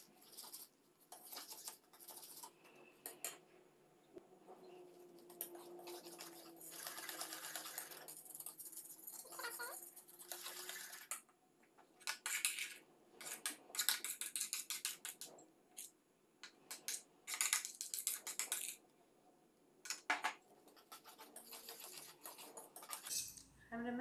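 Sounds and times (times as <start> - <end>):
whisk scraping against bowl: 0.0 - 3.3, 5.0 - 11.2, 20.7 - 23.4.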